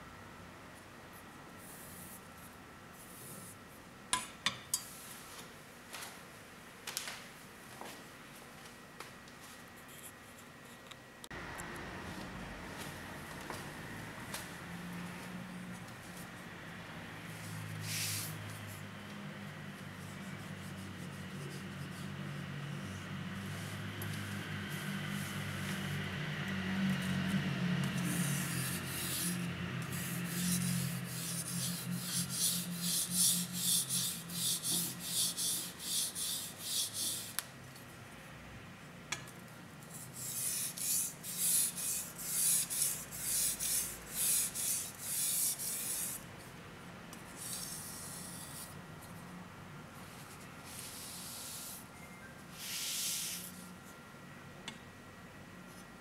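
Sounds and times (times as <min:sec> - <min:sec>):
knife scraping on whetstone: 0:28.0 - 0:37.3.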